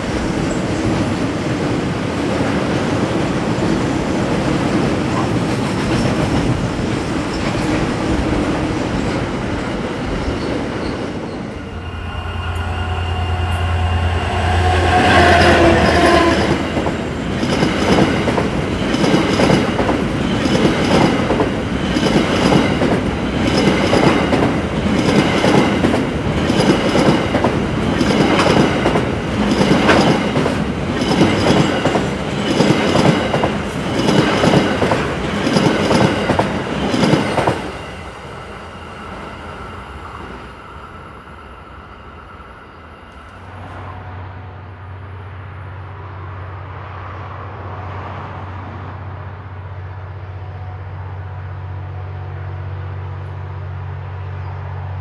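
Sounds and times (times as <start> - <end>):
high-pitched wheel squeal: 10.8 - 16.8
locomotive engine drone: 11.2 - 17.6.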